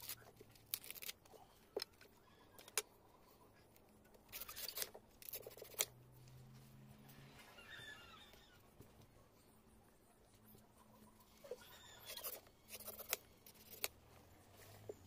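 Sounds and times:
knife scraping coconut husk: 11.4s - 14.0s.

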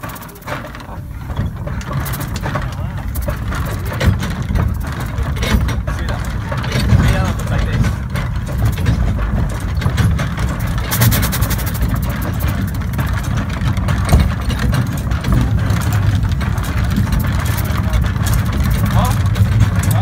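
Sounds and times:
steam locomotive rumble and clatter: 0.0s - 20.0s
steam hissing: 10.8s - 12.6s.

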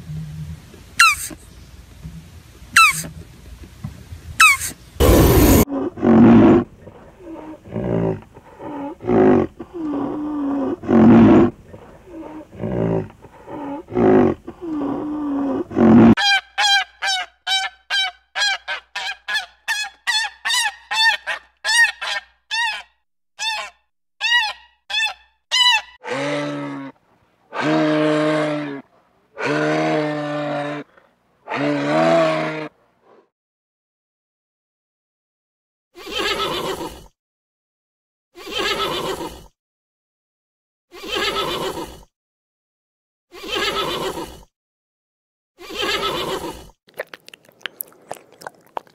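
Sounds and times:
low repeated animal calls: 26.0s - 32.8s.

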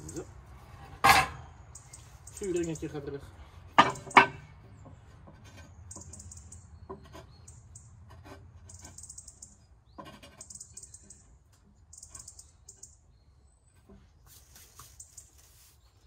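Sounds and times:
ceramic parts knocking and scraping: 0.0s - 1.9s, 3.7s - 12.8s
bird twittering: 1.7s - 3.0s, 5.9s - 7.9s, 8.7s - 11.3s, 11.9s - 13.4s.

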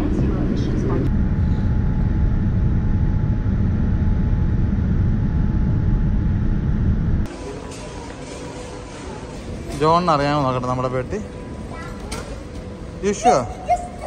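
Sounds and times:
airliner cabin engine rumble: 0.0s - 8.2s
faint steady whine: 0.0s - 9.6s.

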